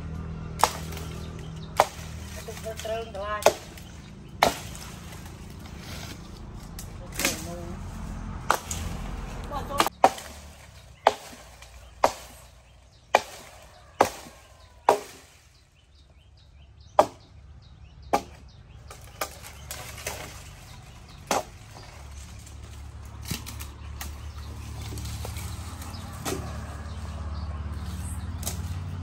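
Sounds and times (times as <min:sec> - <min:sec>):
axe chopping wood: 0:00.6 - 0:05.3, 0:08.4 - 0:09.0, 0:09.7 - 0:15.3, 0:16.9 - 0:17.3, 0:18.1 - 0:20.4, 0:21.1 - 0:21.9, 0:23.2 - 0:26.7.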